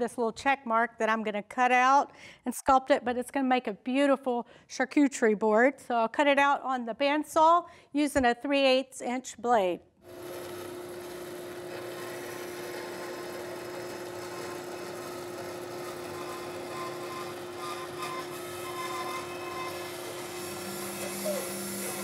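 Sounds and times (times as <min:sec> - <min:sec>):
bandsaw cutting wood: 0:10.1 - 0:22.0.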